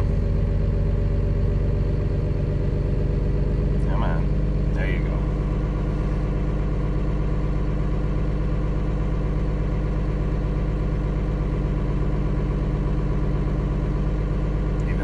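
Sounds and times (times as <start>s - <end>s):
diesel engine idling: 0.0s - 15.0s.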